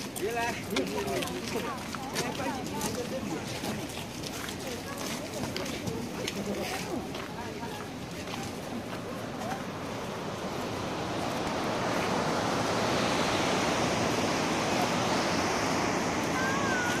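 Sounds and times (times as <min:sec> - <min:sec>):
outdoor rushing noise: 0:09.2 - 0:17.0.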